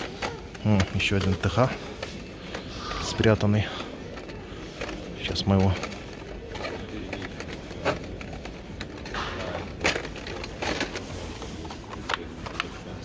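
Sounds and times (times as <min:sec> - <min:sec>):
plastic and cardboard rustling: 0:04.0 - 0:13.0.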